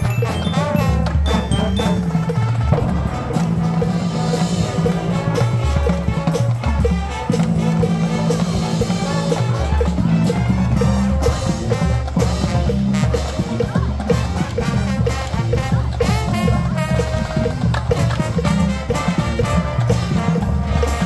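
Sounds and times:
metronome ticking: 0.0s - 2.8s
brass chords: 0.0s - 21.0s
drums and mallet percussion: 0.0s - 21.0s.

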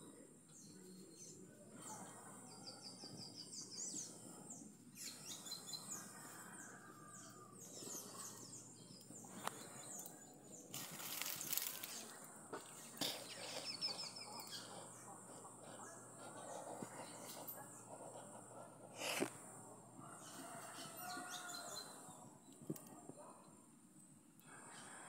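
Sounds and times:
small birds chirping: 0.0s - 19.3s, 20.0s - 23.7s
rustling hiss: 10.7s - 12.2s.

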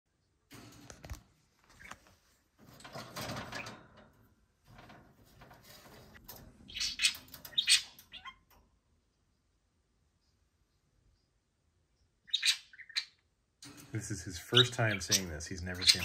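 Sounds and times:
rustling at a wire cage: 0.5s - 8.8s, 13.6s - 16.0s
budgerigar squawks: 12.3s - 13.1s.

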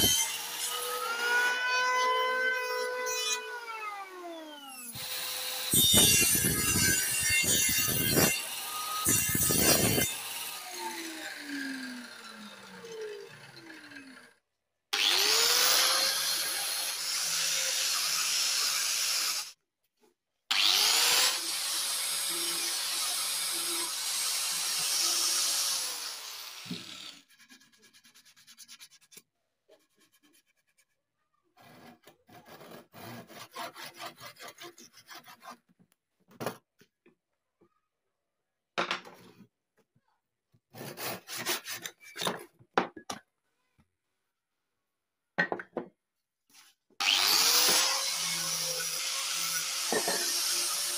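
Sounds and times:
handsaw cutting wood: 0.0s - 3.8s, 4.6s - 14.3s, 15.0s - 19.6s, 20.5s - 30.8s, 31.6s - 35.7s, 40.7s - 42.0s, 47.0s - 50.9s
angle grinder sanding wood: 47.0s - 50.9s.

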